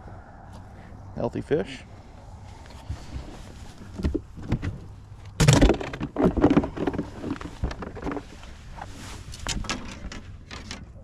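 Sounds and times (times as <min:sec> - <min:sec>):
knocks and thumps in a boat: 0:03.8 - 0:11.0.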